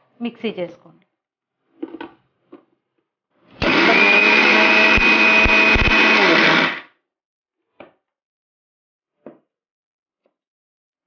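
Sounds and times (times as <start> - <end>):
mixer grinder motor whining: 3.6 - 6.9.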